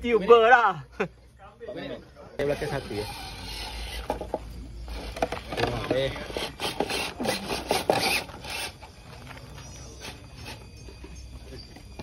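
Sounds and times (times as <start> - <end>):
gritty scraping and crunching: 2.4 - 11.7.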